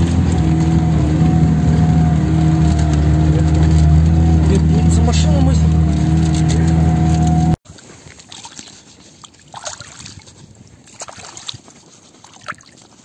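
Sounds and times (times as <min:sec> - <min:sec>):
water sloshing and trickling: 0:00.0 - 0:13.0
small splashes or knocks: 0:07.7 - 0:13.0.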